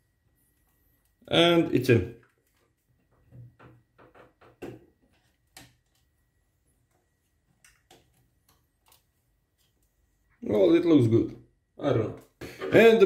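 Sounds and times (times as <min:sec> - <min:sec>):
clicks and rustles of handling cables: 0:02.2 - 0:10.4.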